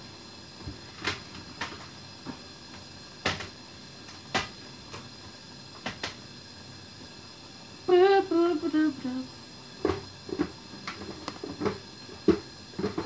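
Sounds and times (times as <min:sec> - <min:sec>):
household items knocking and clicking: 0:03.2 - 0:03.5, 0:09.8 - 0:13.0.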